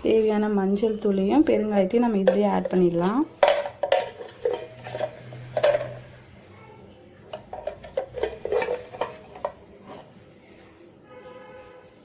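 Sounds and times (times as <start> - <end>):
spoon knocking on steel vessels: 2.0 - 6.1, 7.3 - 10.1.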